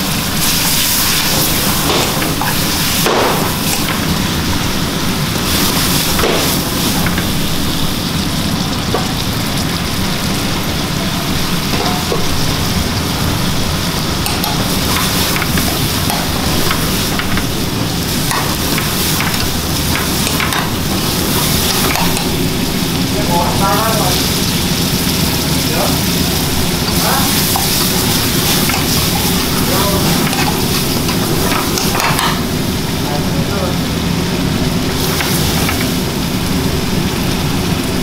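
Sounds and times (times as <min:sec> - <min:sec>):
food sizzling in a wok: 0:00.0 - 0:38.0
gas burner rumble: 0:00.0 - 0:38.0
metal ladle scraping wok: 0:26.0 - 0:32.5.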